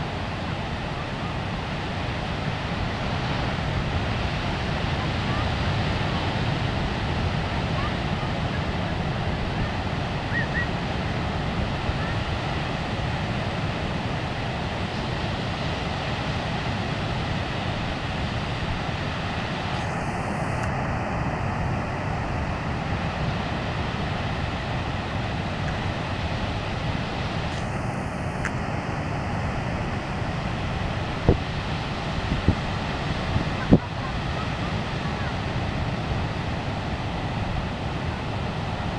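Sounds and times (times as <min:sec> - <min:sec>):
ocean surf rushing: 0:00.0 - 0:38.9
wind buffeting microphone: 0:00.1 - 0:38.9.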